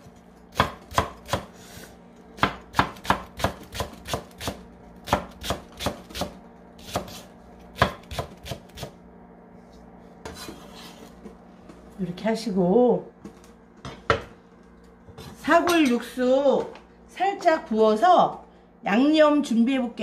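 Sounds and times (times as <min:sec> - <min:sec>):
knife chopping on wooden board: 0:00.5 - 0:01.6, 0:02.4 - 0:08.9.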